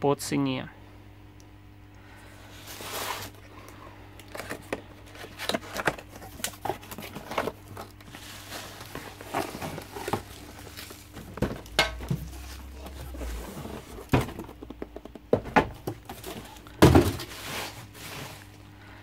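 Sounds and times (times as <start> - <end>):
cardboard and bubble wrap rustling: 2.4 - 3.4, 4.2 - 18.7
knocks and thumps on cardboard: 11.2 - 17.3.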